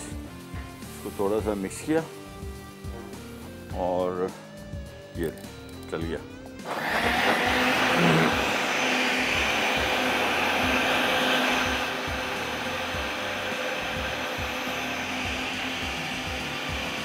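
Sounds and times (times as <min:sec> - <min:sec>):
blender running: 0:06.6 - 0:17.0.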